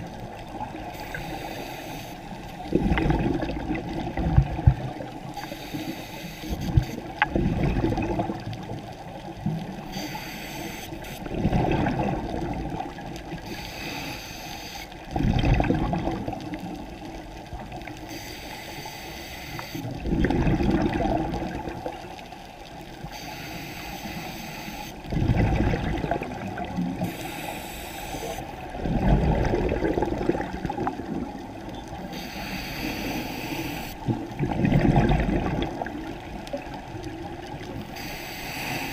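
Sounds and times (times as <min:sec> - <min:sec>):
bubbling exhaust underwater: 0:00.0 - 0:14.2, 0:15.0 - 0:38.9
regulator inhale hiss: 0:00.8 - 0:02.5, 0:05.3 - 0:07.0, 0:09.9 - 0:11.3, 0:13.4 - 0:15.0, 0:18.1 - 0:19.9, 0:23.0 - 0:25.0, 0:27.0 - 0:28.5, 0:32.1 - 0:34.0, 0:37.9 - 0:38.9.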